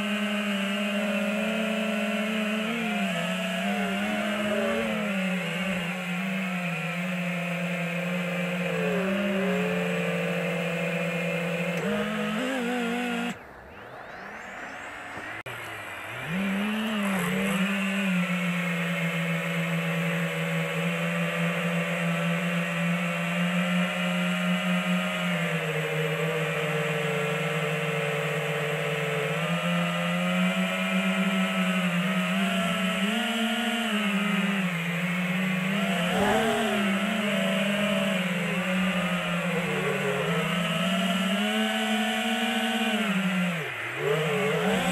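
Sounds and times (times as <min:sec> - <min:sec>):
drone motors whining: 0:00.0 - 0:44.9.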